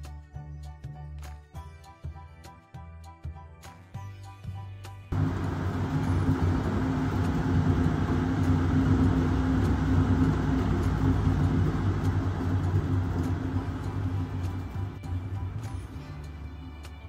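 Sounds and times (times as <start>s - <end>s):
cat exercise wheel rumbling: 5.2s - 15.0s.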